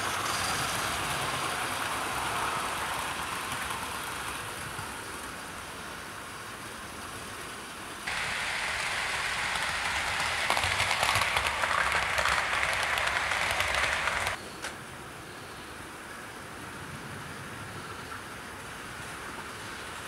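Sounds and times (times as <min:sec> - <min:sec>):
wheels clicking on rails: 0:00.0 - 0:06.1, 0:08.1 - 0:14.8
model train whirring: 0:00.0 - 0:06.2, 0:08.1 - 0:14.7.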